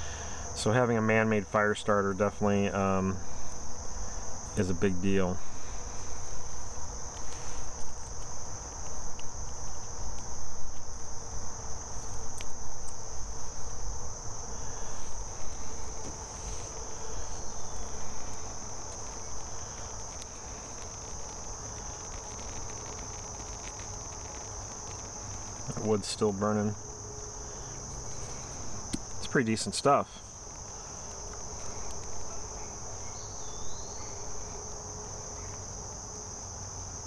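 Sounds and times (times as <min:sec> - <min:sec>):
insect chorus trilling: 0:00.0 - 0:37.0
faint clicks: 0:17.6 - 0:25.8.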